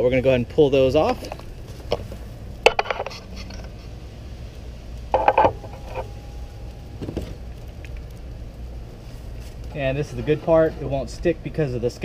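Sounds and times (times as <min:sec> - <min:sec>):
steady low rumble: 0:00.0 - 0:12.0
faint ringing tone: 0:05.2 - 0:07.5.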